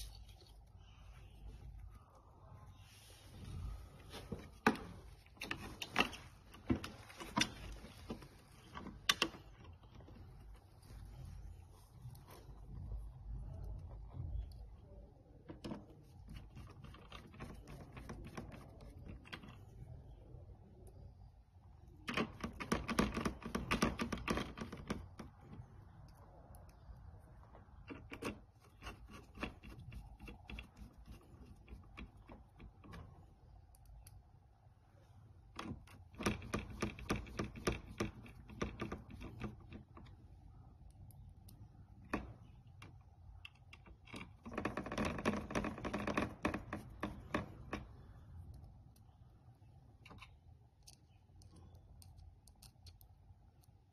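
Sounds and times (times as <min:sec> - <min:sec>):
handling noise: 0:02.8 - 0:14.8.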